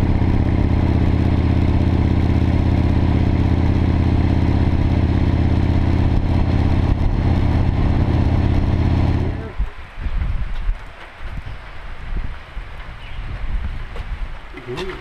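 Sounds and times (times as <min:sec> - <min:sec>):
motorcycle engine cruising: 0:00.0 - 0:09.6
wind and road noise: 0:00.0 - 0:15.0.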